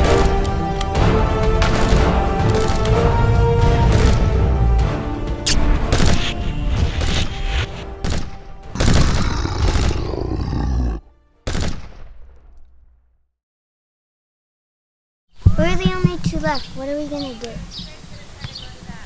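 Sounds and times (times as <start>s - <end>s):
music: 0.0s - 12.8s
gunshots: 1.4s - 10.0s, 11.4s - 12.6s
blast: 1.5s - 12.6s.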